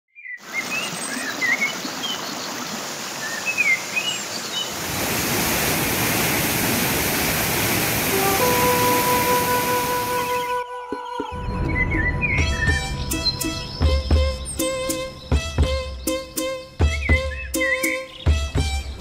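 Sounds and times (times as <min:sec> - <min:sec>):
birds chirping: 0:00.2 - 0:19.0
water rushing over rocks: 0:00.4 - 0:10.5.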